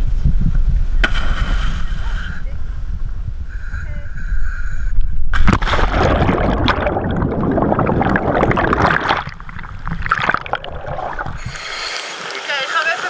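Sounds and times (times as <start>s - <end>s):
gurgling water and bubbles: 5.0s - 12.3s
water splash: 5.4s - 11.9s.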